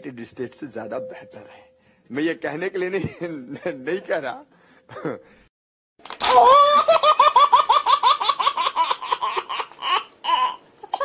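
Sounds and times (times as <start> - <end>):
high-pitched laughter: 6.2 - 11.0.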